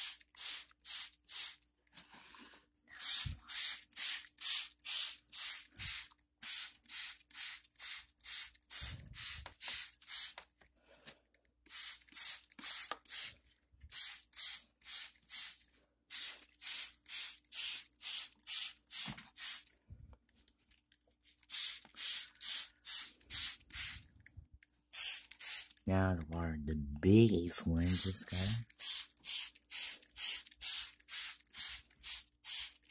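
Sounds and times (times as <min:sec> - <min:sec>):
spray bottle hissing squirts: 0:00.0 - 0:01.6, 0:03.0 - 0:10.4, 0:11.7 - 0:19.7, 0:21.3 - 0:24.1, 0:24.9 - 0:25.8, 0:27.8 - 0:32.9.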